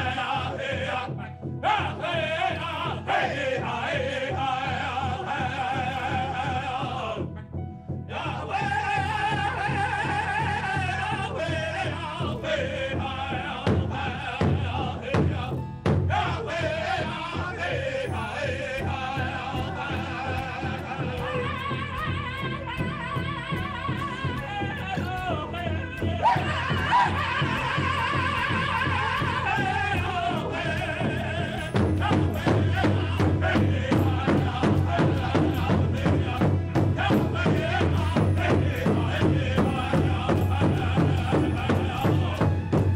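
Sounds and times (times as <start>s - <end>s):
large hide drum beats: 0.0s - 42.9s
singers in high wavering voices: 16.1s - 42.9s.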